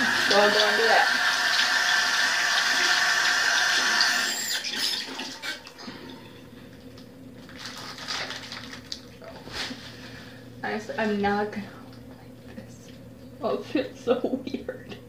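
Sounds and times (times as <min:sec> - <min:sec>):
tap running: 0:00.0 - 0:05.8.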